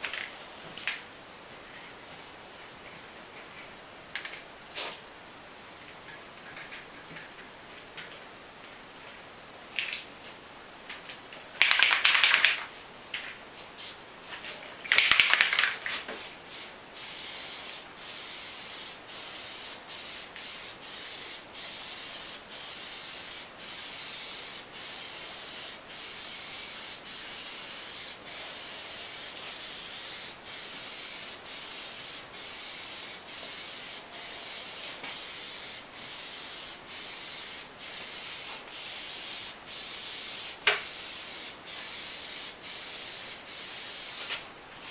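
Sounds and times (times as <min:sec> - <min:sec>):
aerosol spray can hissing: 0:14.9 - 0:44.4.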